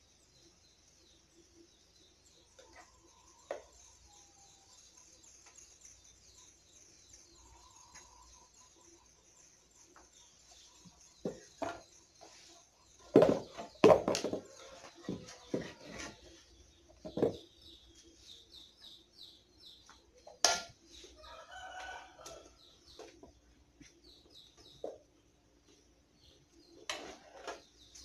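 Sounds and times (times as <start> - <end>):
small birds chirping: 0.0 - 28.0
spoon scraping metal pan: 26.9 - 27.6.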